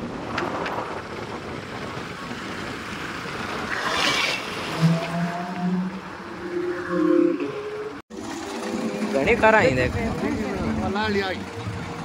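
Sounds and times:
vehicle wind and road noise: 0.0s - 12.0s.

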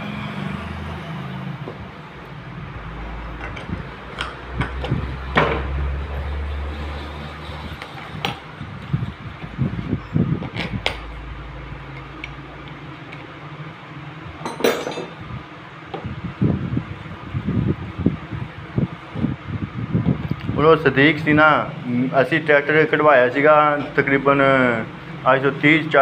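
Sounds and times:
low steady hum: 0.0s - 26.0s
metal parts clinking: 14.4s - 15.2s.

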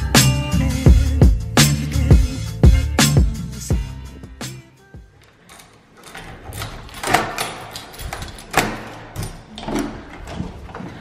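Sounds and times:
key turning in door lock: 5.3s - 11.0s.

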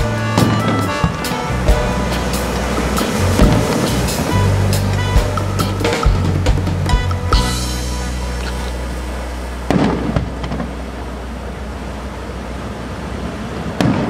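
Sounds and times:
fireworks boom rumbling: 0.2s - 6.7s, 9.6s - 11.0s, 13.6s - 14.0s.

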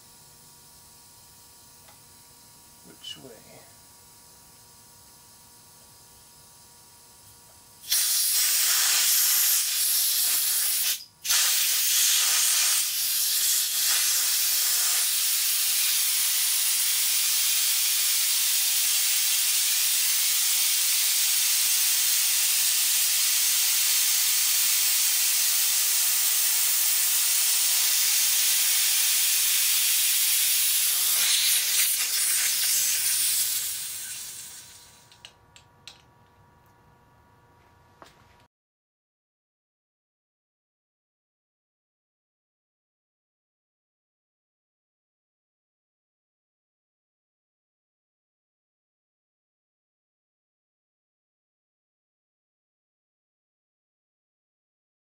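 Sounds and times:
compressed air hissing from valve: 7.8s - 35.1s.

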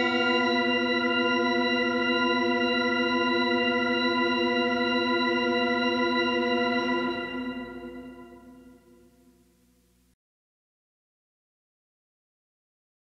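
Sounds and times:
sustained organ chord: 0.0s - 9.6s.

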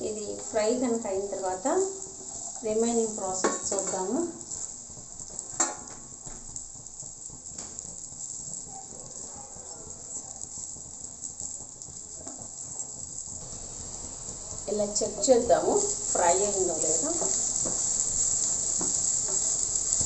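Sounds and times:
okra sizzling in a pan: 0.0s - 20.0s
spatula knocking against pan: 18.7s - 19.6s.

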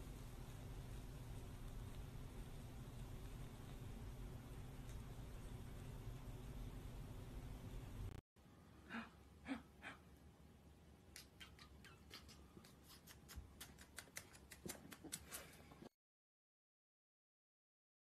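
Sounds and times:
puppy licking wet clicks: 11.1s - 15.6s.

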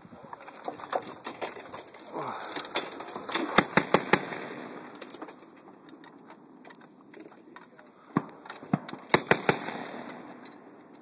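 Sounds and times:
grenade launcher firing burst: 9.1s - 10.2s.

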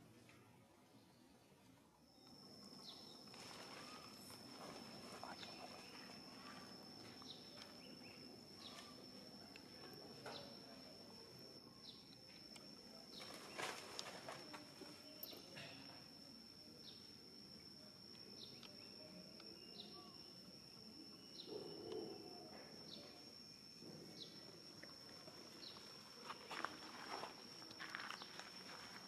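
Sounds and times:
high insect whine: 1.4s - 29.0s
rustling steps on ground: 25.8s - 29.0s.

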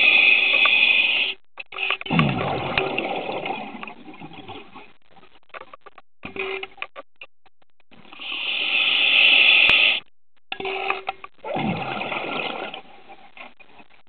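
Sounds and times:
regulator inhalation hiss: 0.0s - 1.4s, 8.2s - 10.0s
exhalation bubbling underwater: 2.1s - 4.9s, 11.4s - 12.9s.

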